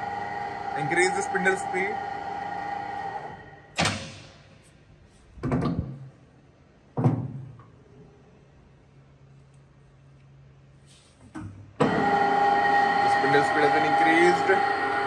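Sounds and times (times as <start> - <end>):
lathe running: 0.0 - 3.6, 11.8 - 15.0.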